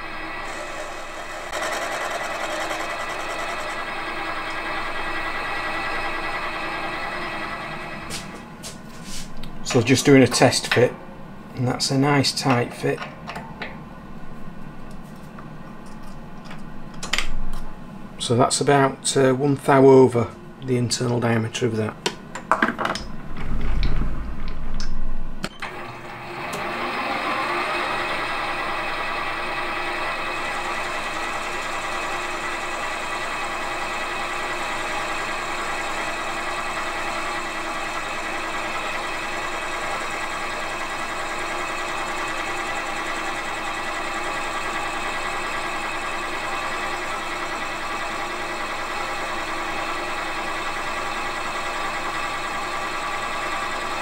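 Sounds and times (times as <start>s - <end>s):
metal lathe whine: 0.0s - 8.2s, 25.6s - 54.0s
tool cutting brass bar: 0.4s - 3.9s.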